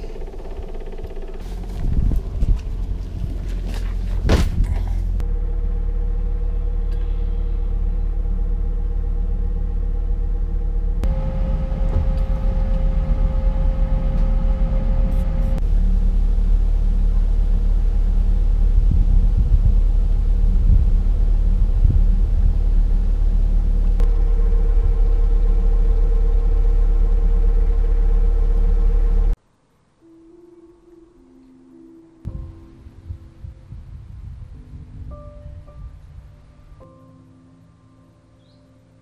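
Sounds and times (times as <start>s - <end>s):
boat engine drone: 0.0s - 29.4s.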